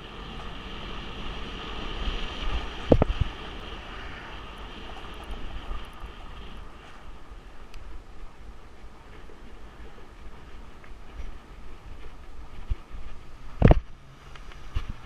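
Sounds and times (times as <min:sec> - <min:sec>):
bike tyres rolling on pavement: 0:00.0 - 0:15.0
wind rushing over microphone: 0:00.0 - 0:15.0.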